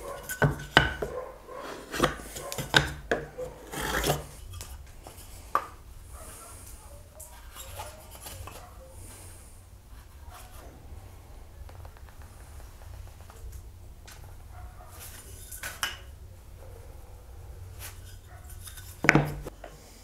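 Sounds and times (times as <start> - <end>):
metal tools tapping on wood: 0.1 - 1.2, 1.9 - 3.3.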